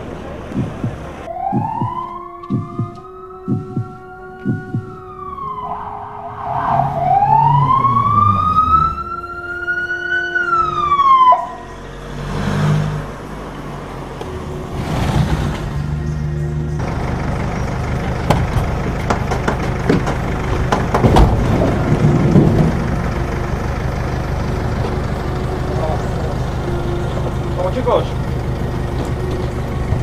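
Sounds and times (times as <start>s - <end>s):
ambulance siren wailing: 0.0s - 14.7s, 15.7s - 30.0s
vehicle engine and tyre noise: 0.0s - 30.0s
heavy heartbeat-like thumps: 0.5s - 5.1s.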